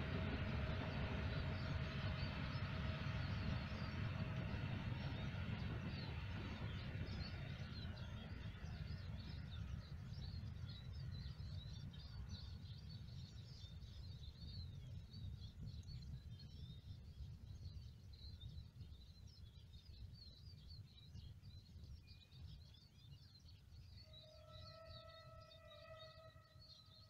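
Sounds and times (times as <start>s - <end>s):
diesel locomotive departing: 0.0s - 13.4s
steady low rumble: 0.0s - 21.0s.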